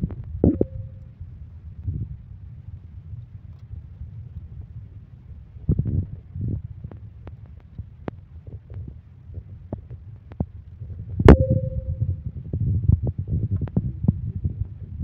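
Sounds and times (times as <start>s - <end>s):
loud ringing knock: 11.3s - 12.0s
low rumble: 11.3s - 12.4s.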